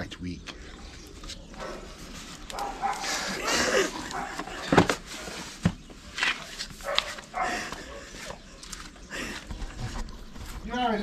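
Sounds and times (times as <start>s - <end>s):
dogs barking and whining: 1.5s - 5.0s, 6.8s - 9.2s.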